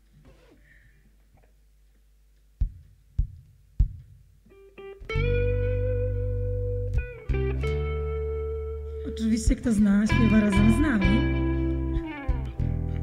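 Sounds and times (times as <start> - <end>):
guitar and bass chord: 4.8 - 13.0.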